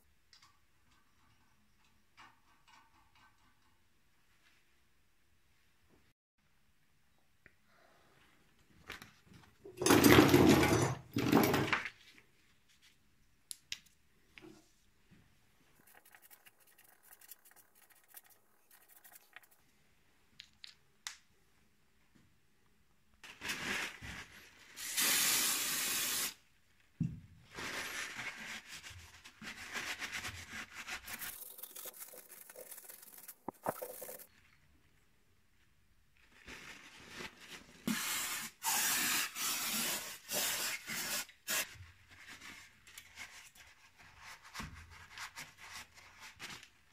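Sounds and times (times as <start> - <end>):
cloth rubbing and wiping: 15.8 - 19.6.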